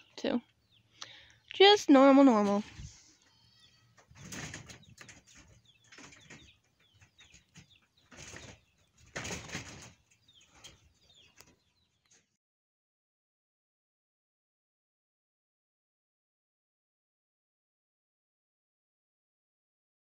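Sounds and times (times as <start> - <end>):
rabbits scuffling on grass: 1.6 - 12.2.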